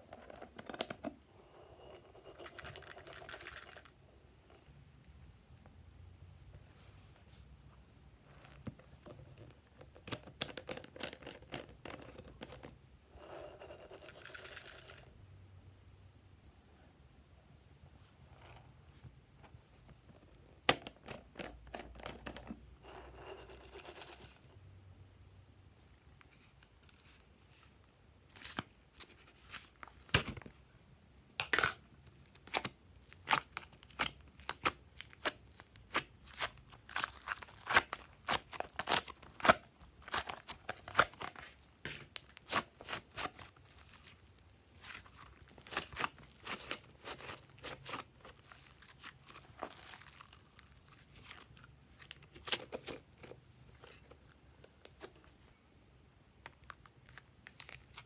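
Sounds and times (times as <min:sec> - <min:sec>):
plastic crinkles: 0:32.2 - 0:55.4.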